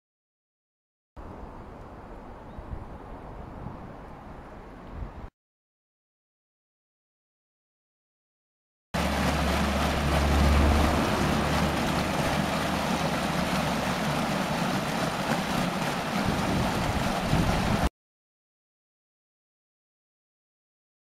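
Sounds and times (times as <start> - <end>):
low rumble: 9.0 - 15.6
water rushing down a channel: 9.0 - 17.9.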